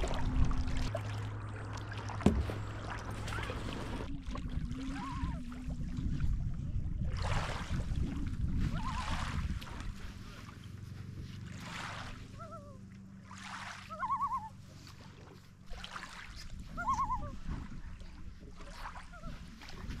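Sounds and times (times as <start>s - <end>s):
low steady hum: 0.0s - 20.0s
paddle swishing in water: 0.0s - 20.0s
short warbling squeak: 2.3s - 4.2s.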